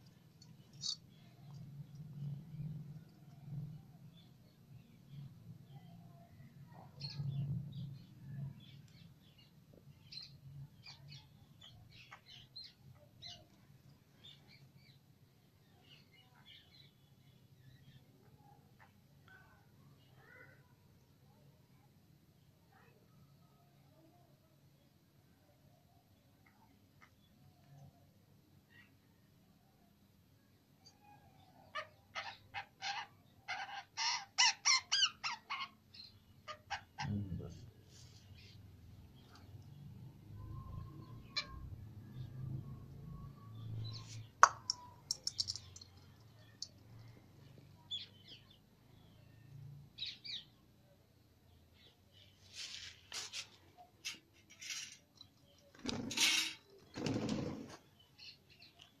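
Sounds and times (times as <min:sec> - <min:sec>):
bird wings fluttering: 0:56.9 - 0:57.8.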